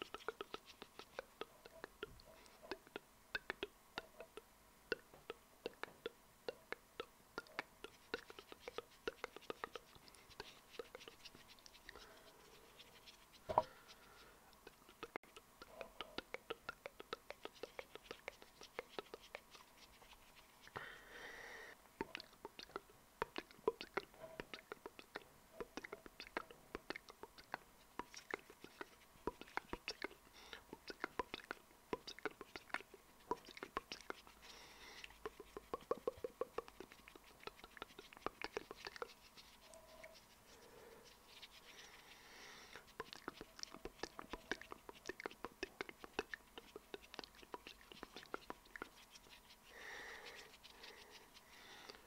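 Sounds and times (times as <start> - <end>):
wet mouth clicks and pops: 0.0 - 12.2, 14.5 - 20.8, 22.0 - 39.8, 42.7 - 49.3
breathy hiss: 11.9 - 14.5, 20.7 - 21.8, 34.3 - 35.2, 40.5 - 42.9, 49.6 - 52.0.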